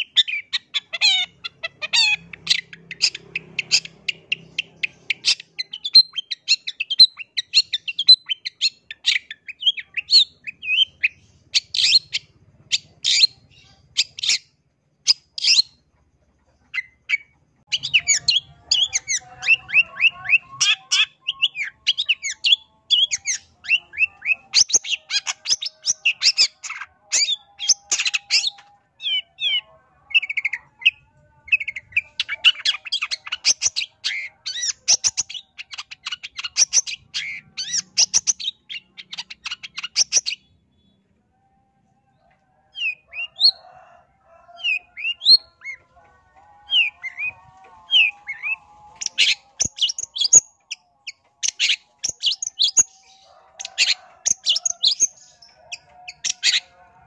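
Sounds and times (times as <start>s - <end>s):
shrike singing: 16.7s - 57.0s.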